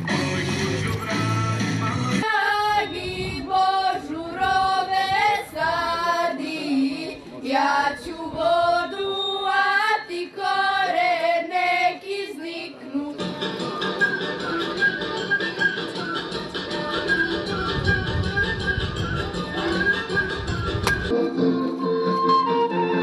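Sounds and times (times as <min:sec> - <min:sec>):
girls singing unaccompanied: 0:02.2 - 0:13.4
instrumental folk music: 0:13.2 - 0:23.0.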